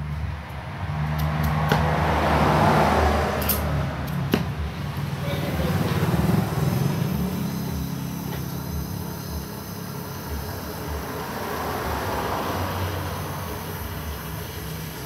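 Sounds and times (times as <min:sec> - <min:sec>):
gas torch flame hissing: 0:01.1 - 0:15.0.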